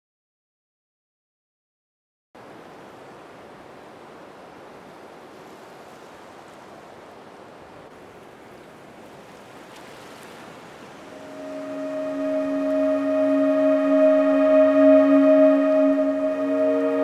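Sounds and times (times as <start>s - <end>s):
sustained low tone: 11.2s - 17.0s.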